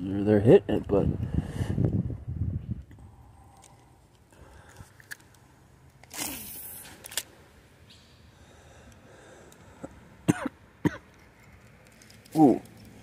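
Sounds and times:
person coughing: 10.3s - 11.0s.

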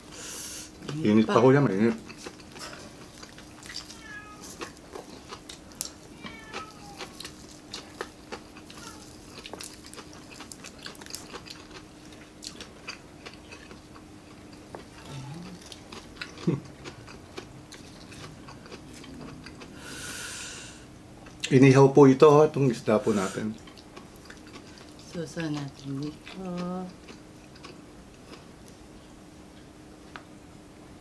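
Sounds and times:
faint steady hum: 0.0s - 31.0s
chewing: 1.9s - 19.8s, 23.1s - 28.8s.

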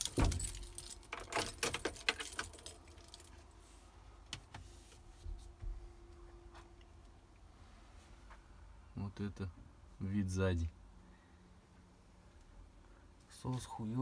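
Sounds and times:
keys jangling: 0.0s - 3.4s
faint hum: 2.4s - 14.0s.

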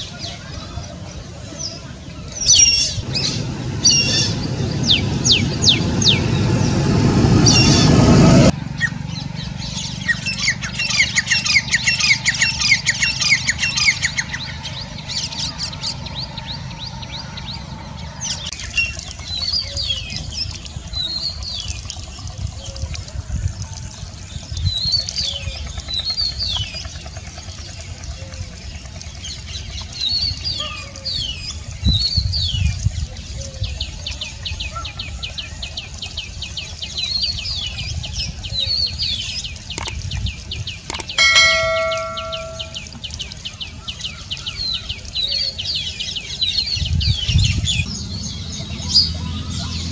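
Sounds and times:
low hum: 3.0s - 10.2s, 40.9s - 43.0s.

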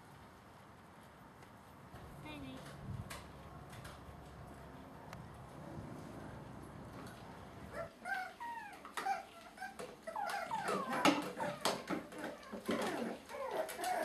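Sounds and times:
puppies yipping and whimpering: 7.7s - 14.0s.

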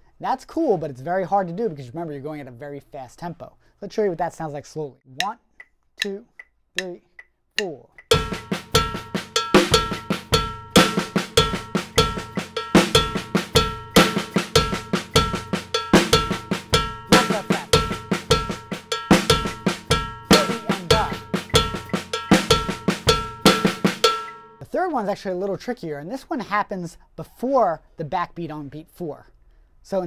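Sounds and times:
bass drum strokes: 8.1s - 24.6s
cowbell: 8.1s - 24.6s
snare drum strokes: 8.1s - 24.6s.

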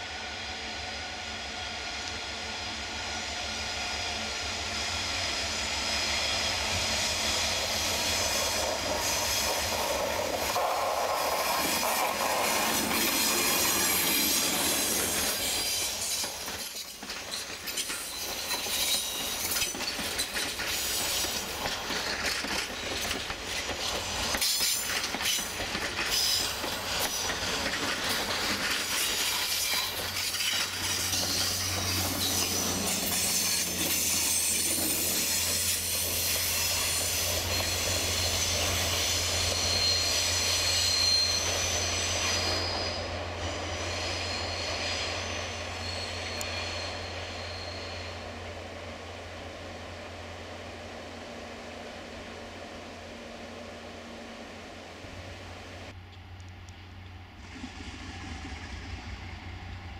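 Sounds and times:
diesel locomotive engine: 0.0s - 59.9s
low locomotive engine hum: 0.0s - 59.9s
train wheels clicking over rail joints: 6.4s - 47.8s
wheel flanges squealing: 11.5s - 48.4s.

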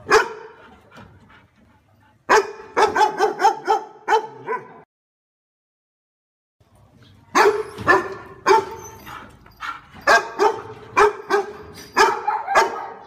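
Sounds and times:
dog barking: 0.0s - 0.6s, 2.3s - 4.8s, 7.3s - 13.0s.

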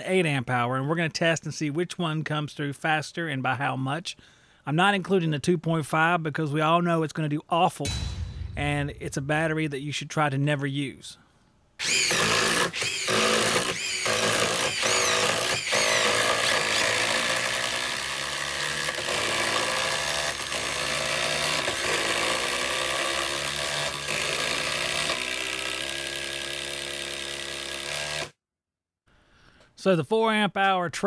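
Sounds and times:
impact driver driving screws into wood: 11.8s - 28.3s.

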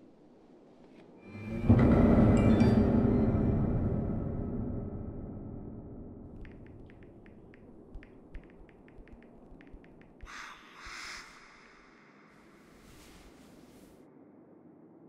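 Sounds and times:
faint irregular clicks: 6.4s - 11.8s.

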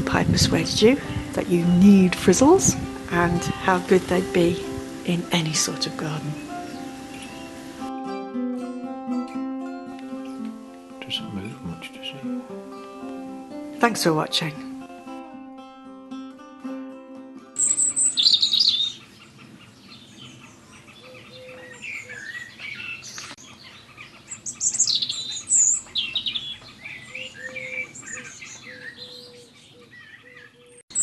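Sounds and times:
guitar piece: 0.0s - 18.2s
birds chirping and singing: 0.1s - 7.8s, 10.2s - 13.0s, 17.6s - 31.0s.

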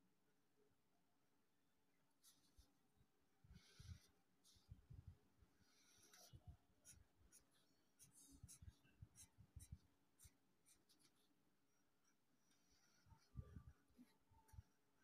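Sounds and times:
felt-tip pen scratching on paper: 5.6s - 11.3s.

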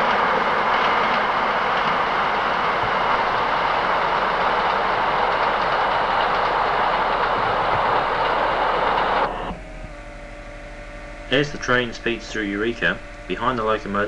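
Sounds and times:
steam train rushing past: 0.0s - 9.6s.

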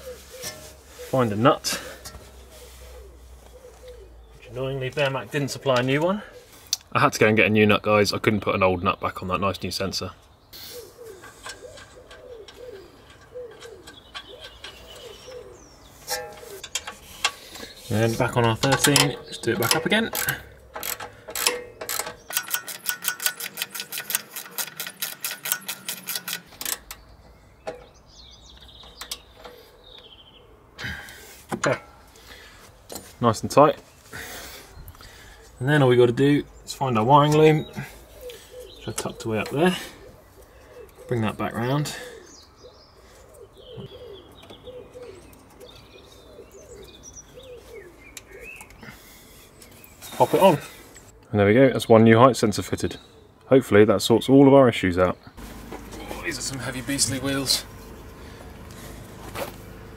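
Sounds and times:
pigeon cooing: 0.0s - 4.4s, 10.6s - 16.8s, 29.2s - 31.4s, 37.6s - 49.3s
small birds chirping: 0.0s - 59.9s
hand ratchet clicking: 18.5s - 27.0s.

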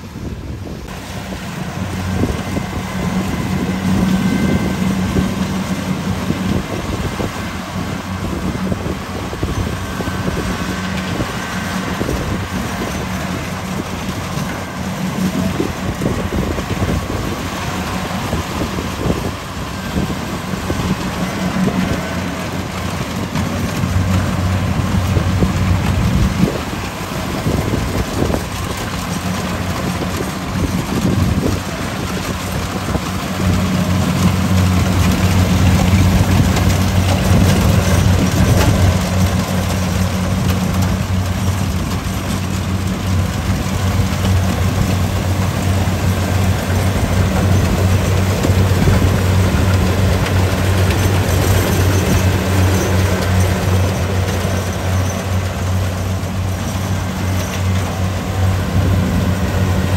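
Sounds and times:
diesel engine running: 0.0s - 59.9s
machinery noise: 0.0s - 59.9s.

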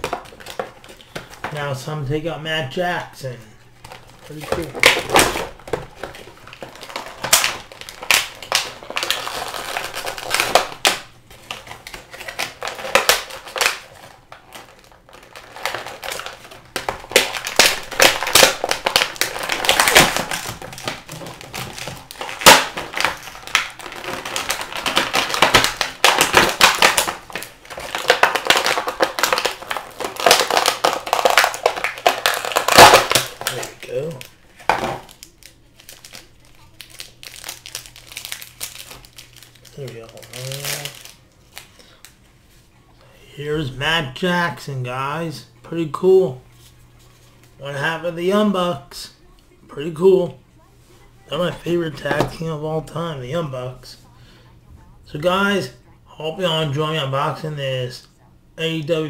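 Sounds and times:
plastic packaging crinkling: 0.0s - 1.6s, 3.7s - 42.6s.

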